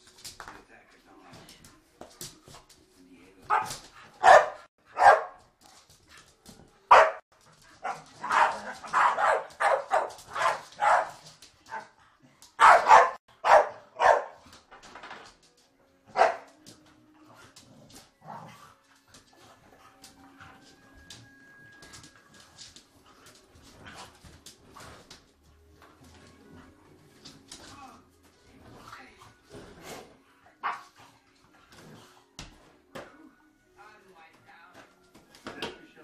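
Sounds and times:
dogs barking while play fighting: 3.5s - 5.5s, 6.9s - 12.0s, 12.6s - 14.6s, 16.1s - 16.6s, 17.3s - 18.8s, 30.6s - 31.2s.

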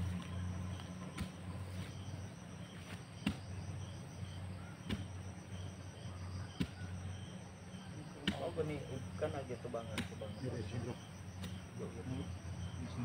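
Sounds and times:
digging tool striking ground: 0.0s - 1.9s, 2.7s - 3.6s, 4.7s - 5.2s, 6.5s - 7.0s, 8.2s - 8.7s, 9.8s - 10.4s, 11.4s - 11.8s
steady low hum: 0.0s - 13.0s.

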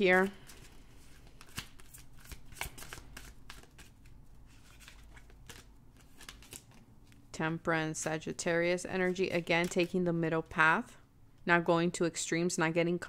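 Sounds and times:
cards being shuffled by hand: 0.0s - 7.3s, 9.0s - 10.1s.

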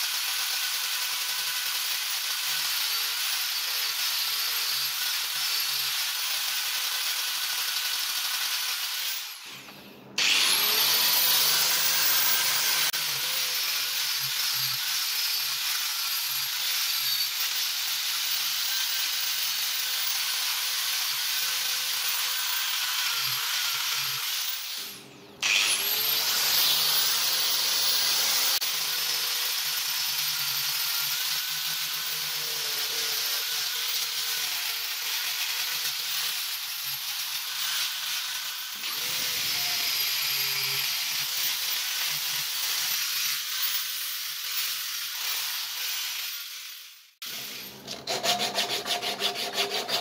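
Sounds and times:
angle grinder whining: 0.4s - 50.0s.

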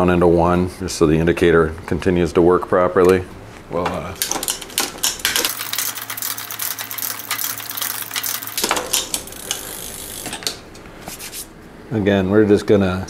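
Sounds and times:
bicycle parts clicking and rattling: 3.9s - 10.8s.

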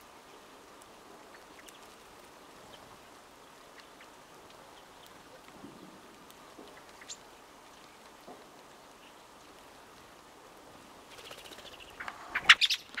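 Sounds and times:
woodpecker calls: 6.6s - 8.0s, 11.1s - 13.0s.

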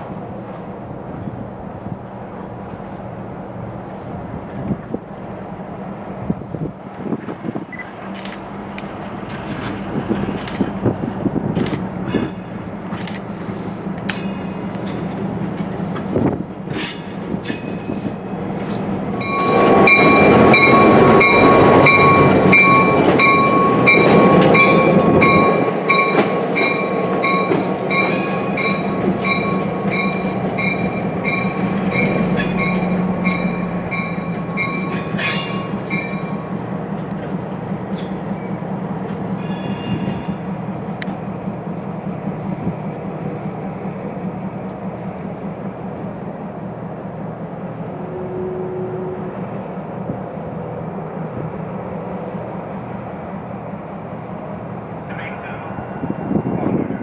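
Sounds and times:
diesel locomotive engine humming: 0.0s - 57.0s
locomotive bell ringing: 19.2s - 36.4s.

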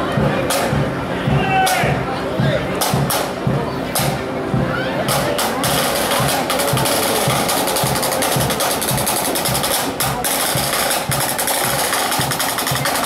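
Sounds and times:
bass drum beating: 0.0s - 13.0s
snare drums rapid strokes: 0.4s - 2.0s, 2.8s - 4.2s, 5.1s - 13.0s.

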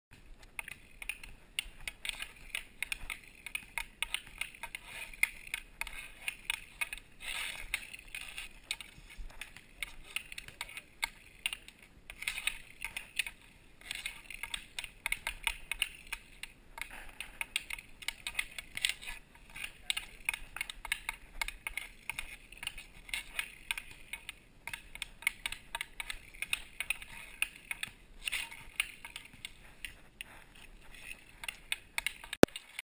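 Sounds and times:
hockey stick tapping puck on asphalt: 0.4s - 30.0s.

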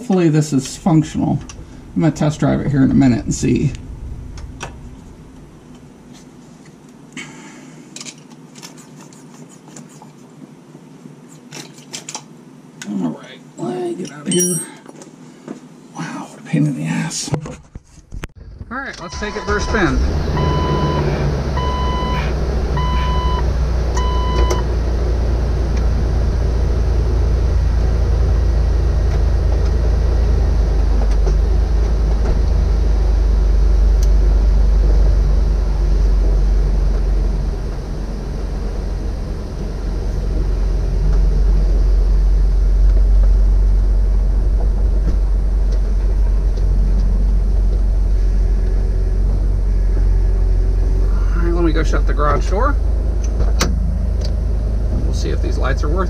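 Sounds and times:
car engine rumbling: 0.0s - 7.2s, 18.3s - 56.0s
warning chime beeping: 19.0s - 23.4s.

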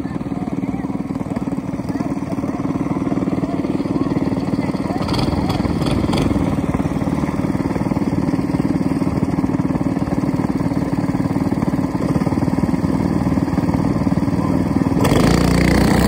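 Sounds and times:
minibike engine idling: 0.0s - 16.0s.

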